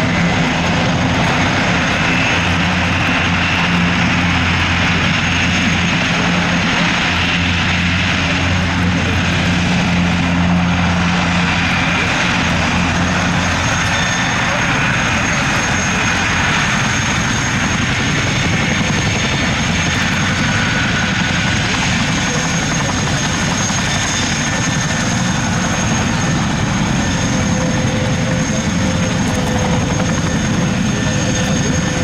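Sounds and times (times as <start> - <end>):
turboprop engines running loud: 0.0 - 32.0.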